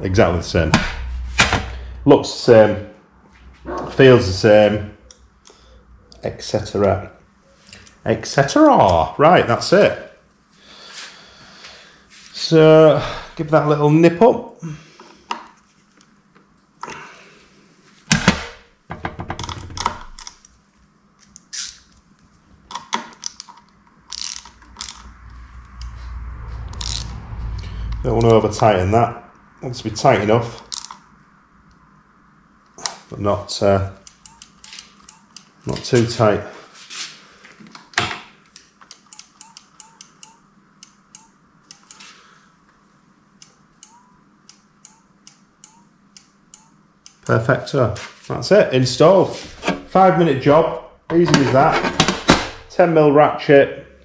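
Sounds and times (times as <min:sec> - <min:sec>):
ratchet clicking: 0:24.1 - 0:25.1, 0:26.8 - 0:27.1.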